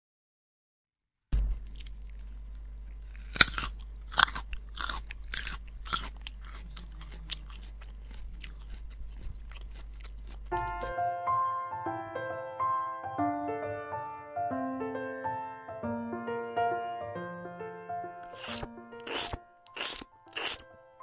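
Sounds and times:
rabbit chewing carrot: 1.4 - 10.9, 18.2 - 20.6
piano music: 10.5 - 21.0.

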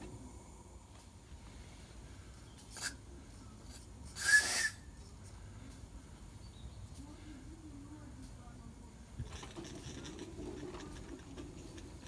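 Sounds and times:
steam hiss: 4.1 - 4.9
steam whistle blast: 4.2 - 4.9.

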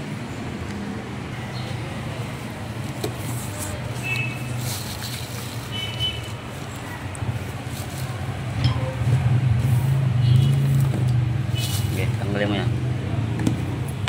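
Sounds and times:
bubble wrap crinkling: 2.8 - 8.4, 11.5 - 12.0.

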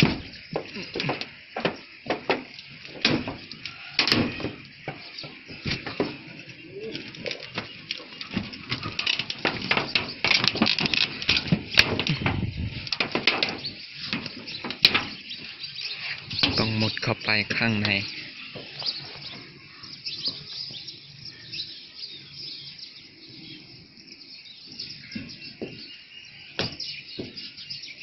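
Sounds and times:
corrugated iron sheets knocking: 0.0 - 6.2, 7.5 - 15.2.

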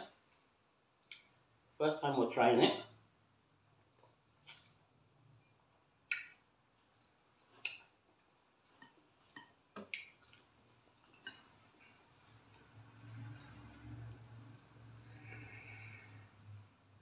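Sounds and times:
wet eating smacks: 3.8 - 5.0, 6.0 - 16.3.

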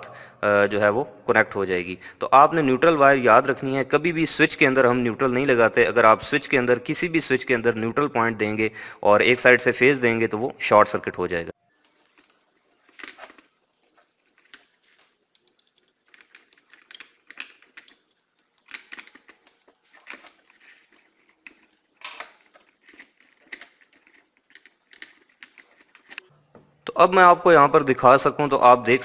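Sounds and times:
tools clicking and tapping: 14.2 - 26.3.

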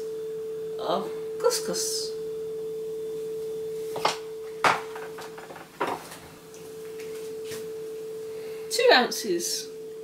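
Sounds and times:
steady hum: 0.0 - 10.0
bowls knocking on a worktop: 4.0 - 6.1.

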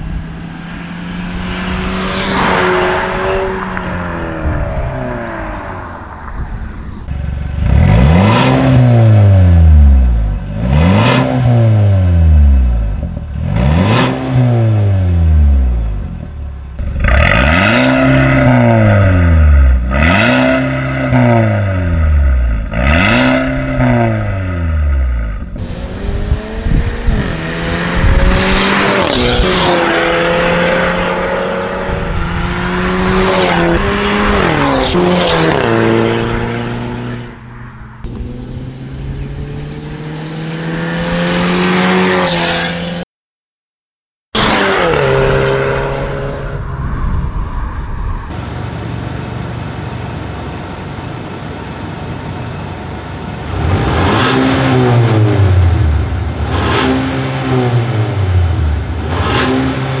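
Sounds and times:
car engine accelerating: 0.0 - 43.1, 44.4 - 60.0
engine revving: 0.0 - 43.2, 44.2 - 49.0, 53.4 - 60.0.

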